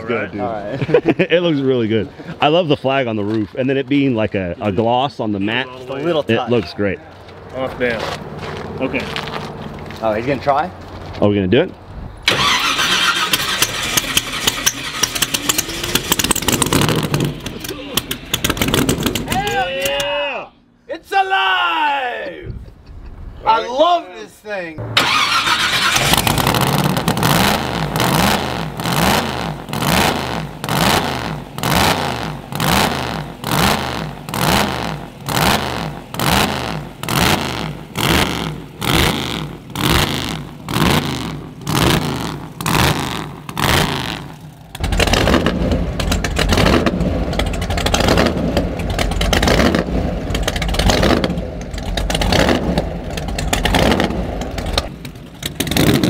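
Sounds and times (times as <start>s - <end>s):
drag car engine revving: 12.2s - 19.6s, 24.8s - 56.0s.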